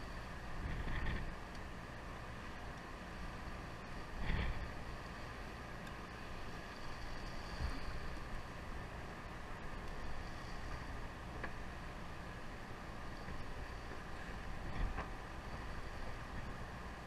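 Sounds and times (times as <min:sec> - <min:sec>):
wind on microphone: 0:00.0 - 0:01.4, 0:03.8 - 0:04.9, 0:13.2 - 0:17.0
boat engine rumbling: 0:00.0 - 0:17.0
water washing along hull: 0:00.0 - 0:17.0.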